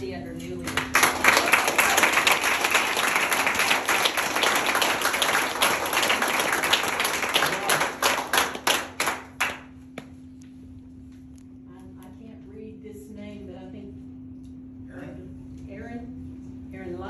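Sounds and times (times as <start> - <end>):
audience applauding: 0.7 - 9.8.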